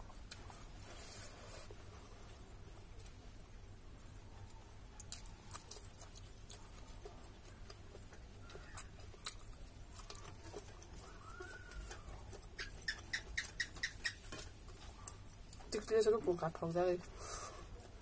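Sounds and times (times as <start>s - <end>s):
eating by hand: 0.0s - 3.2s, 4.3s - 18.0s
animal clucking: 6.5s - 15.3s.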